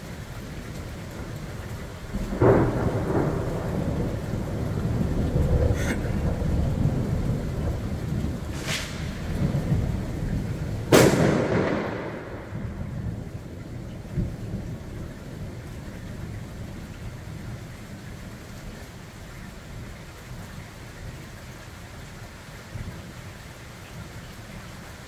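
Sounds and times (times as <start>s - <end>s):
heavy rain: 0.0s - 25.0s
thunder cracking and rumbling: 1.1s - 17.5s.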